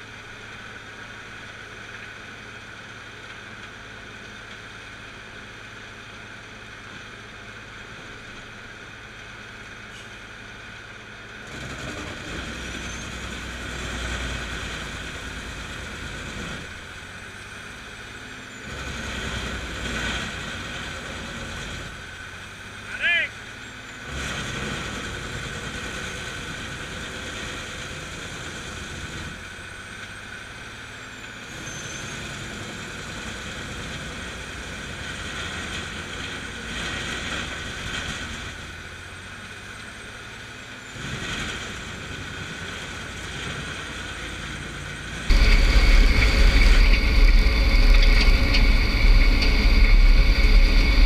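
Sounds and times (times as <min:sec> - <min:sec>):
wood grinder running: 0:45.2 - 0:51.0.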